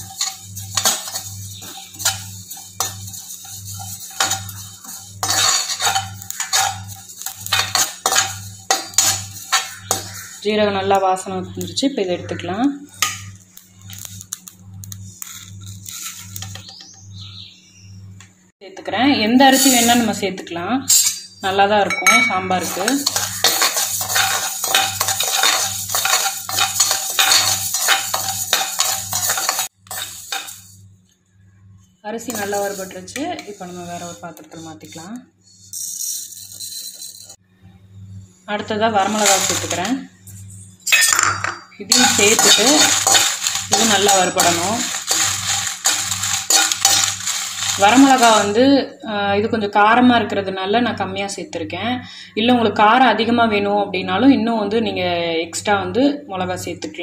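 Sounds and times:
rice grains rattling in a pan: 0.0 - 10.4, 13.8 - 16.6, 22.6 - 30.8, 32.3 - 35.0, 35.6 - 37.4, 39.0 - 39.9, 41.9 - 48.7
metal spatula scraping a pan: 0.0 - 10.5, 15.2 - 16.7, 19.4 - 20.2, 20.8 - 21.4, 22.1 - 30.8, 32.2 - 37.4, 38.9 - 41.1, 41.9 - 48.7.

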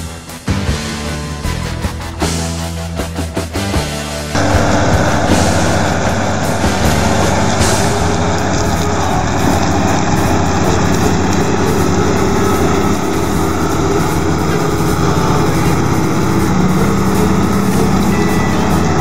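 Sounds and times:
tractor diesel engine under load: 4.3 - 19.0.

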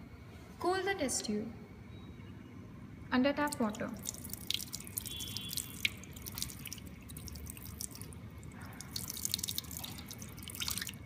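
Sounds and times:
tap water splashing on glass: 3.5 - 11.0.

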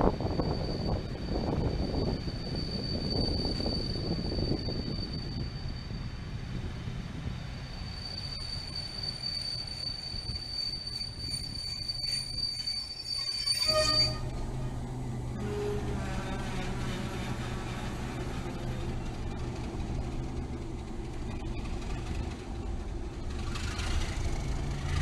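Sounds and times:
train brake squeal: 0.0 - 19.4
train wheels rumbling: 0.0 - 25.0.

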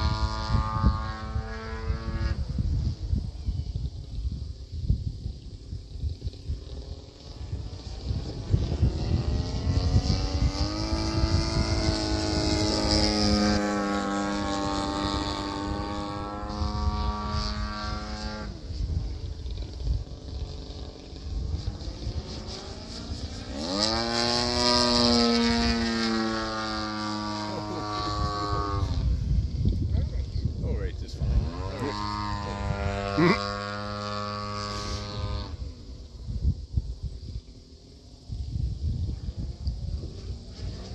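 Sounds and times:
model airplane motor and propeller: 0.0 - 40.9.

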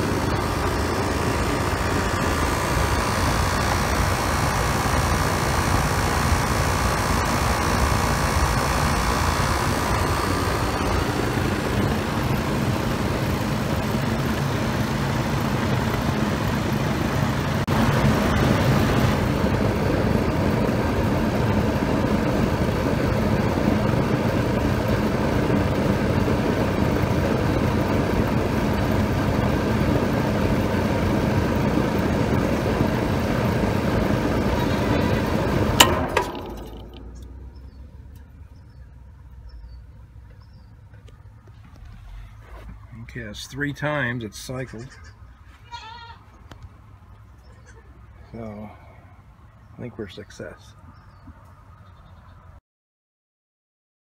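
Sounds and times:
contactor click: 0.0 - 13.0
fan winding down: 0.0 - 44.6
condenser unit fan and compressor: 0.0 - 45.5.

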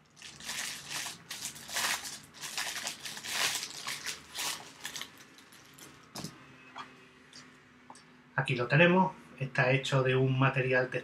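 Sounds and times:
plastic wrapping crinkling: 0.0 - 6.3.

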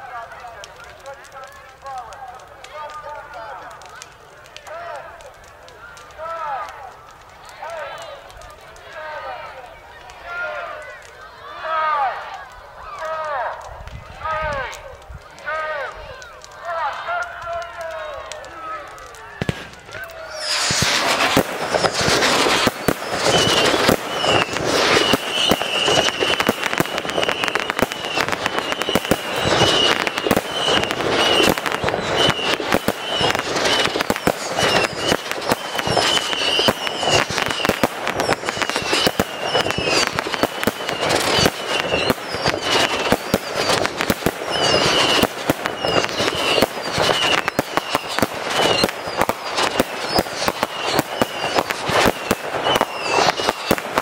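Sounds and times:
fireworks bangs and crackling: 0.0 - 54.0
high firework whistle: 19.4 - 54.0.

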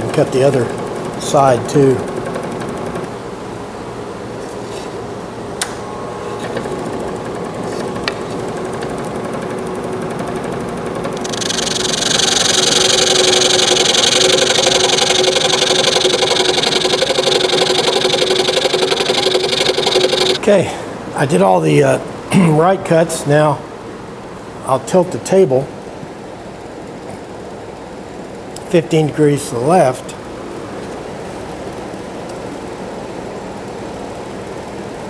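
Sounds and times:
scroll saw motor hum: 6.3 - 20.4.

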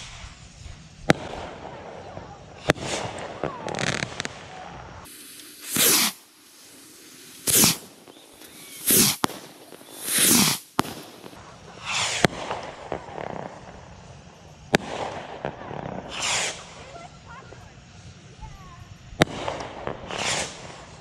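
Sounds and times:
rockets bursting with cracks: 0.0 - 21.0
bottle rockets whooshing: 5.1 - 12.3, 16.1 - 16.8, 20.0 - 20.7.

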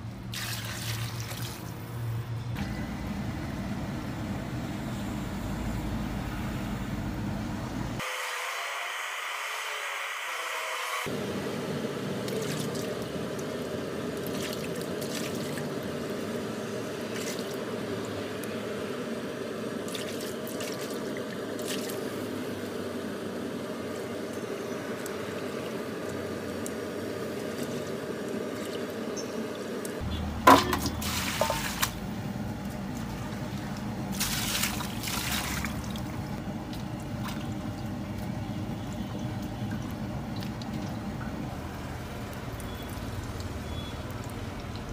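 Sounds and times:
water sloshing in metal basin: 0.3 - 1.8, 12.2 - 13.0, 14.2 - 15.8, 30.1 - 41.0.

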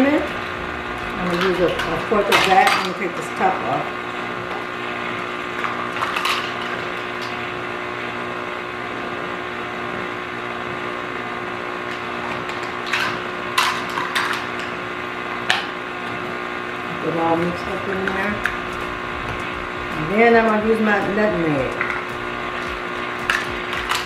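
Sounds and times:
stand mixer motor running: 0.0 - 2.7, 17.4 - 24.0.

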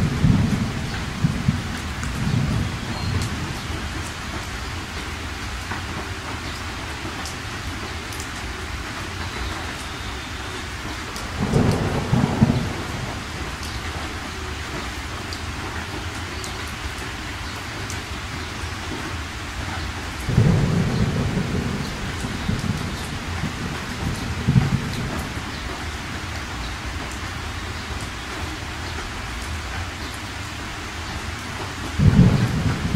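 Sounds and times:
thunder rumbling: 0.0 - 4.5, 10.6 - 15.0, 20.1 - 26.2, 32.0 - 32.9
steady rain: 0.0 - 32.9.

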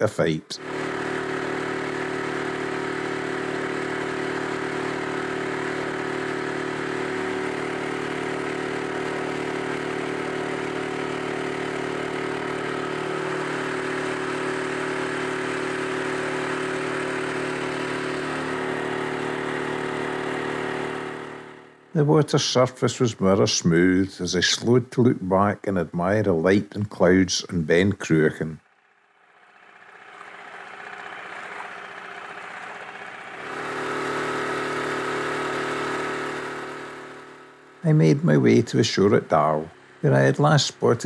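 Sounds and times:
boat engine humming: 28.6 - 37.5.

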